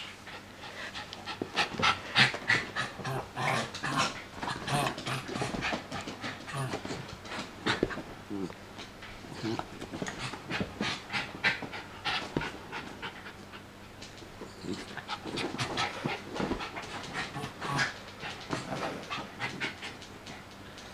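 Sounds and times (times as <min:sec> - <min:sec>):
small dog panting: 0:09.4 - 0:13.7.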